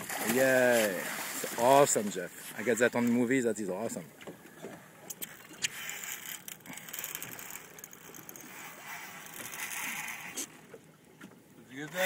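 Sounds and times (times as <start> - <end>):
faint wind and sea hiss: 0.0 - 12.0
fishing reel being cranked: 5.1 - 10.5.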